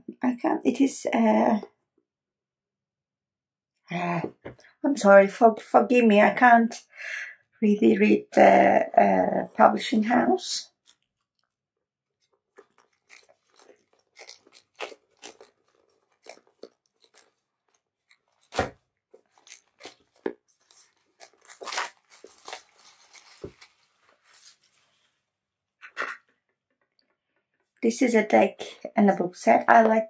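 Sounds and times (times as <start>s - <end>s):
packaging crackling and tearing: 10.7s - 11.5s, 12.2s - 24.7s.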